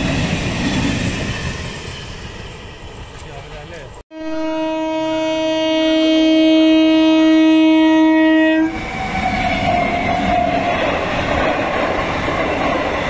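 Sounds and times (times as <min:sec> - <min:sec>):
train wheels rumbling on rails: 0:00.0 - 0:04.0, 0:08.6 - 0:13.0
locomotive horn blast: 0:04.1 - 0:08.8.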